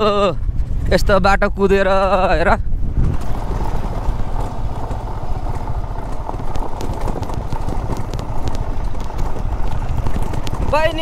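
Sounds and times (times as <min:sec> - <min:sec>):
motorcycle engine running: 0:02.6 - 0:11.0
bike clattering over stones: 0:02.8 - 0:11.0.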